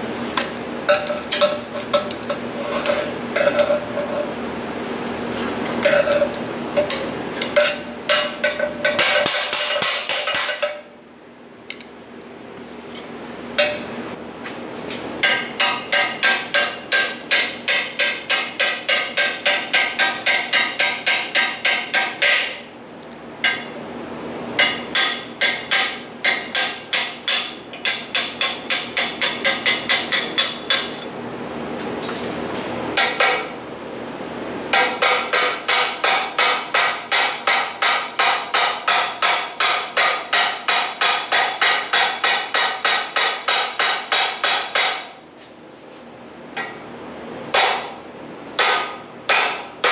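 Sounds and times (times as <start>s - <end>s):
hammer striking steel punch: 15.2s - 22.6s, 24.6s - 31.0s, 34.7s - 45.1s, 47.5s - 48.0s, 48.6s - 49.9s.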